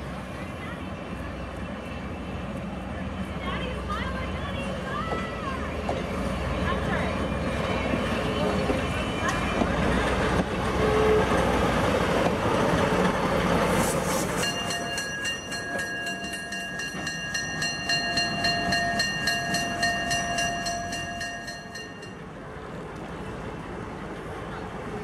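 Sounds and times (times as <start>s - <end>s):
locomotive bell ringing: 14.4s - 22.3s.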